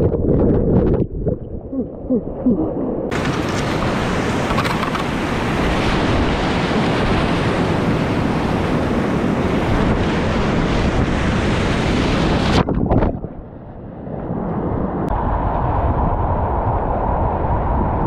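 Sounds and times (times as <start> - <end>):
whitewater rapids roaring: 3.1 - 10.4.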